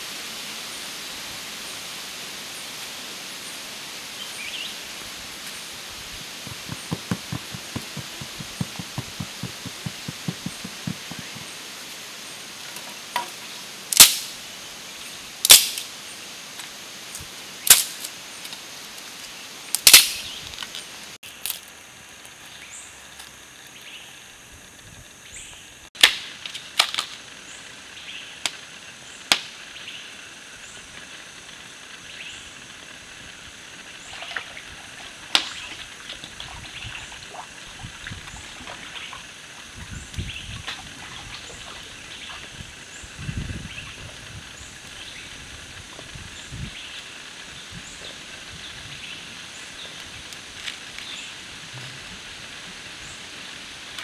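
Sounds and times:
stream water rushing: 2.1s - 12.7s
dry sticks snapping: 14.0s - 14.3s, 15.4s - 15.9s, 19.8s - 20.2s.

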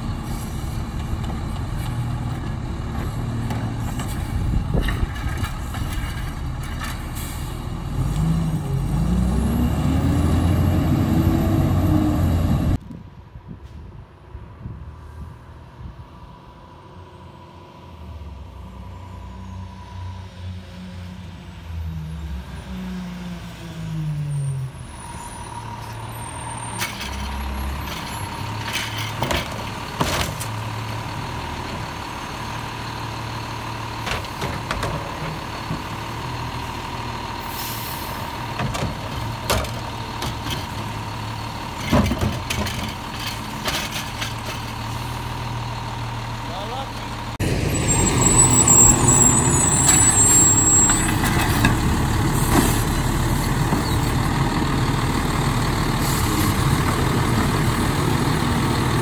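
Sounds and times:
garbage truck engine revving: 7.6s - 12.8s
air brakes hissing: 37.4s - 38.3s.

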